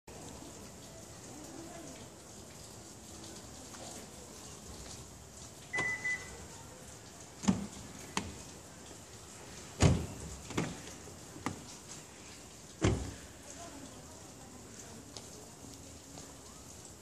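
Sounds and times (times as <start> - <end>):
car alarm buzzer beeps: 5.8 - 6.3
car door clicks and thumps: 9.8 - 10.8, 12.8 - 13.1.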